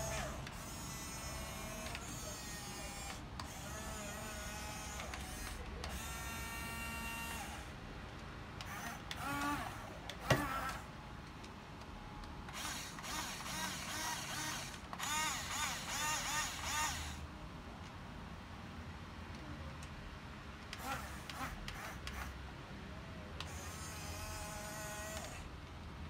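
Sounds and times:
small gear motors whirring: 0.0s - 7.8s, 8.6s - 10.9s, 12.5s - 17.2s, 20.7s - 22.4s, 23.4s - 25.5s.

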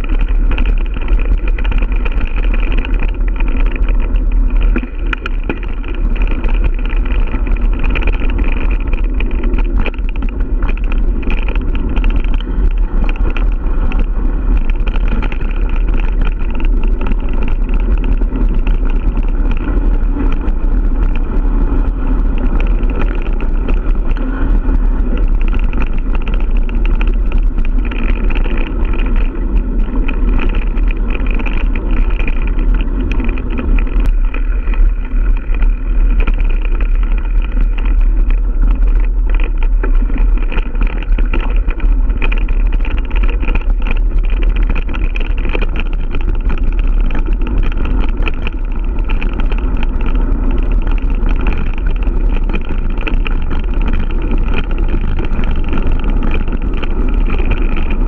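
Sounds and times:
bike rattles and knocks: 0.0s - 58.0s
tyres rumbling on dirt: 0.0s - 58.0s
wind on microphone: 0.0s - 58.0s.

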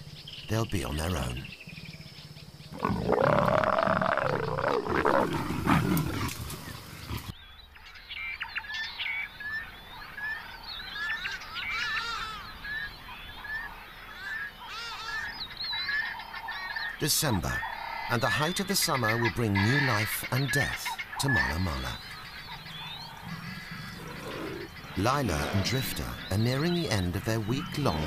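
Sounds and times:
birds chirping and trilling: 0.0s - 28.0s
leopard growling: 2.6s - 7.4s, 20.6s - 28.0s.

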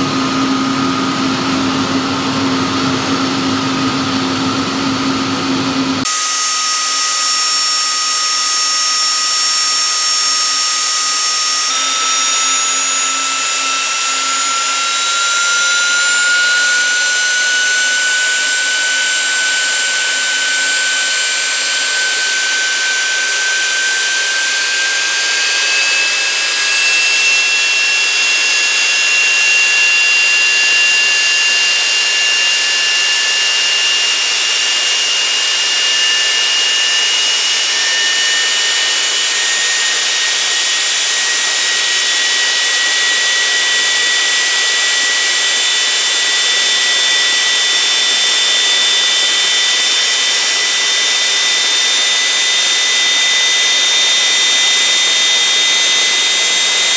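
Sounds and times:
gas turbine rushing and whining: 0.0s - 56.9s.

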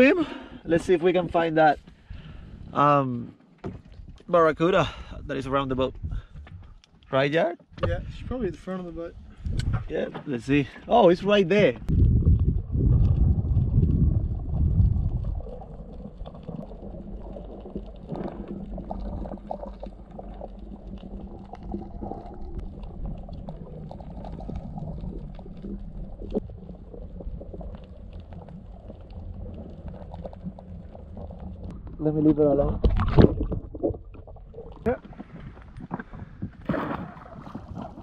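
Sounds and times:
faint clicks and crackles: 5.8s - 7.9s, 8.5s - 38.0s
low underwater rumble: 11.8s - 38.0s
underwater rush of water: 11.9s - 38.0s.

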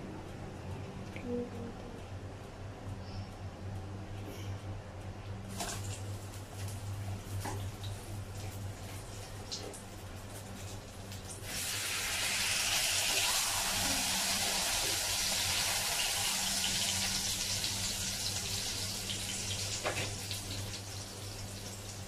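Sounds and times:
meat sizzling in hot oil: 11.2s - 22.0s.

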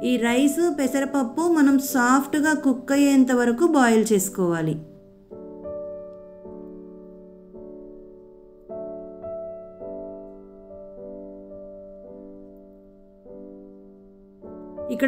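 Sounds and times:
gentle piano chords: 0.0s - 15.0s.

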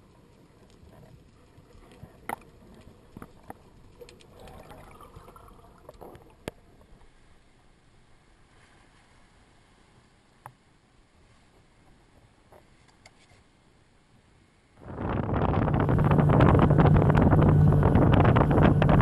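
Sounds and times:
muffled underwater wash: 0.0s - 12.8s, 13.5s - 19.0s
watery rush: 14.8s - 19.0s.

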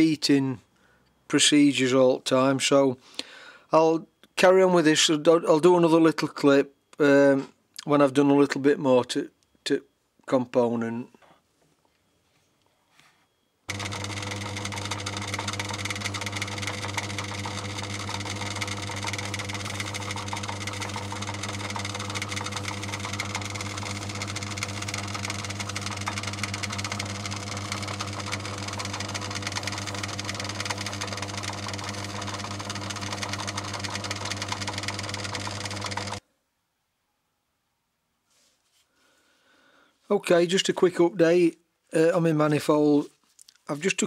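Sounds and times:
metal lathe running: 13.7s - 36.2s.

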